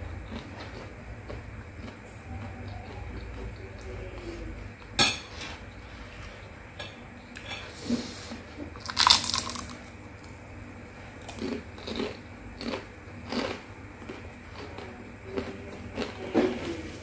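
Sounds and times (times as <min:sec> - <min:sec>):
chewing crunches: 0:00.0 - 0:03.9, 0:08.8 - 0:09.9, 0:11.2 - 0:16.2
fried wonton crunching: 0:08.8 - 0:10.3, 0:11.2 - 0:16.2.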